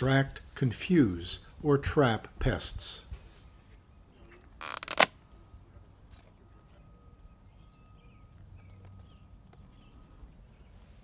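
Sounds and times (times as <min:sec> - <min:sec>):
faint bird chirps: 0:06.4 - 0:11.0.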